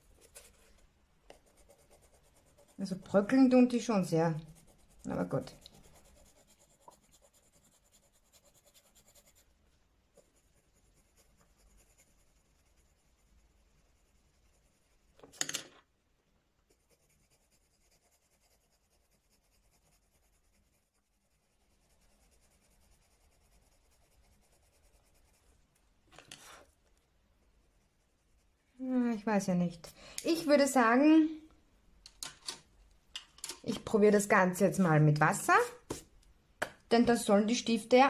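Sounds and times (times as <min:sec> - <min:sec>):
pencil scratching on paper: 0:00.0 - 0:09.5, 0:10.1 - 0:15.3, 0:16.6 - 0:25.6, 0:26.2 - 0:26.8, 0:27.6 - 0:28.6.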